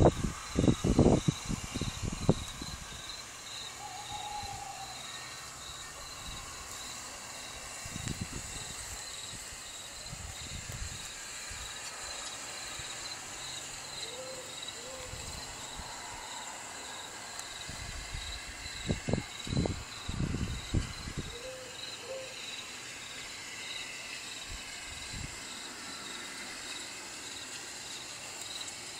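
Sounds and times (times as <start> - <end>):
crickets chirping: 0.0 - 28.9
faint hoots: 3.8 - 6.2, 14.0 - 15.3, 21.3 - 22.4.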